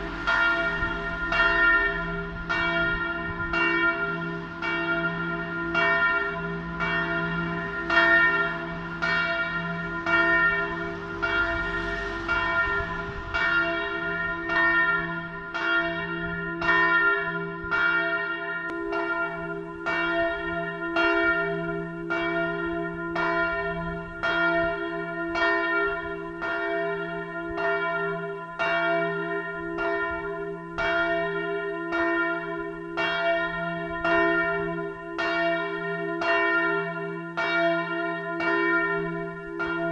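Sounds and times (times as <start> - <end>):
deep bell hum: 0.0 - 17.9, 18.7 - 24.9
large church bell tolling: 0.0 - 39.9.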